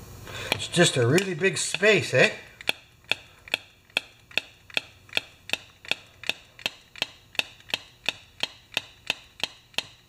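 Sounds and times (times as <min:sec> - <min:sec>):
mechanical ticking: 0:00.5 - 0:10.0.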